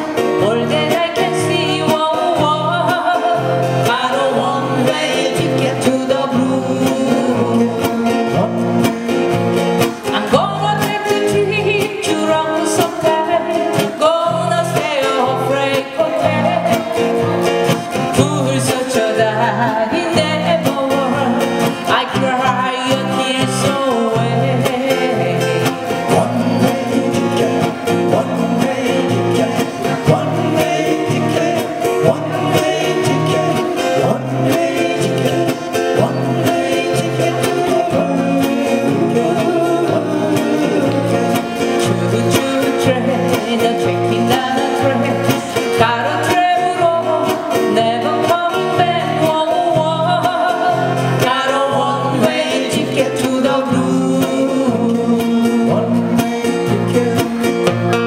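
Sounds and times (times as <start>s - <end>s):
acoustic guitars strumming: 0.0s - 58.0s
person singing: 0.0s - 58.0s.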